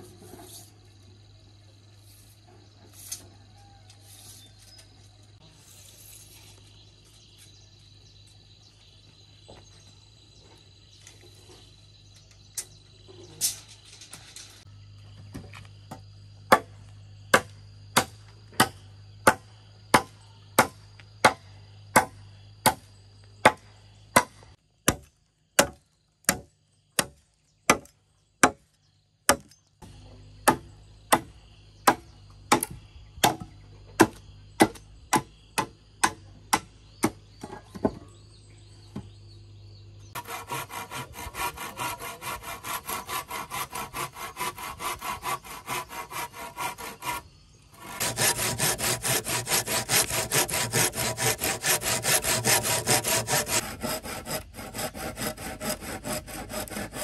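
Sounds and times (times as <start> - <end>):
machete chopping wood: 16.5 - 22.8, 23.4 - 28.6, 30.4 - 38.0
handsaw sawing: 40.2 - 57.0.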